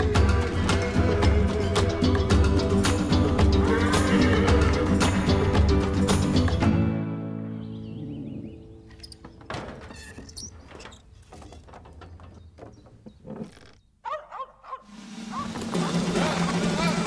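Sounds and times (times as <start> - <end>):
music: 0.0 - 9.0, 14.9 - 17.0
wagon wooden knocks and creaks: 8.9 - 13.9.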